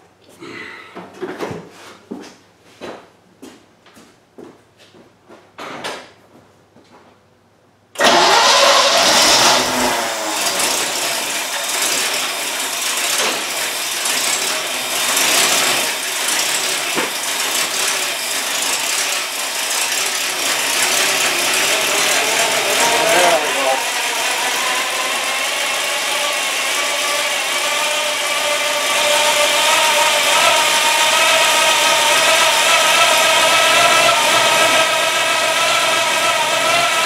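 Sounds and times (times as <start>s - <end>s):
car engine starting and running: 8.0s - 37.0s.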